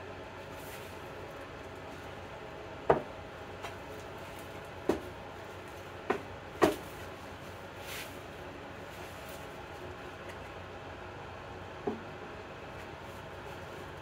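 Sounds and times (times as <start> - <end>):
background hum: 0.0 - 14.0.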